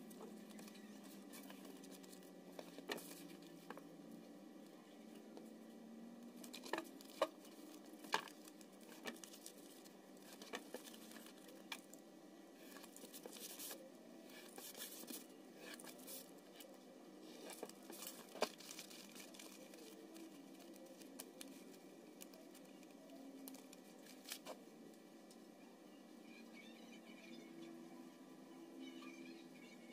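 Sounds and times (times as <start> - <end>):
foil crinkling: 17.4 - 22.6.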